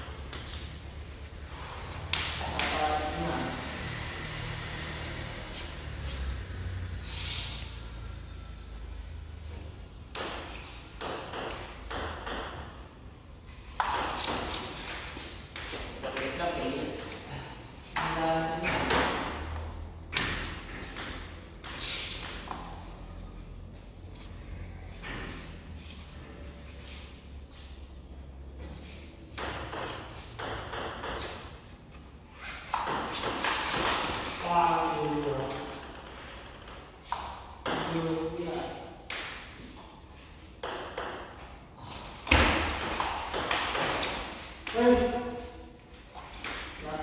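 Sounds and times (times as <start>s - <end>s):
table tennis ball hits: 10.1s - 12.8s, 13.8s - 17.2s, 29.3s - 31.5s, 32.7s - 38.3s, 39.0s - 39.8s, 40.6s - 41.4s, 42.2s - 45.3s.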